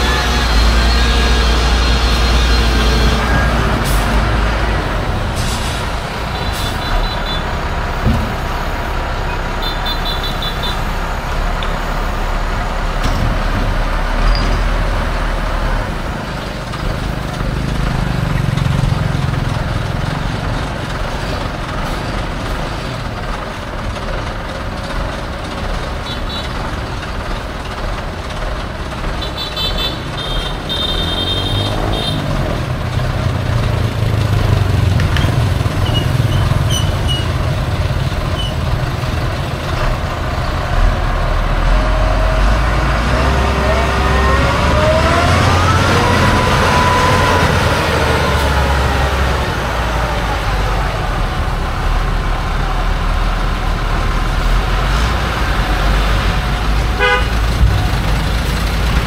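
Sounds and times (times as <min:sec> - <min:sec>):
road noise: 0:00.0 - 0:59.0
vehicle engine running: 0:15.1 - 0:59.0.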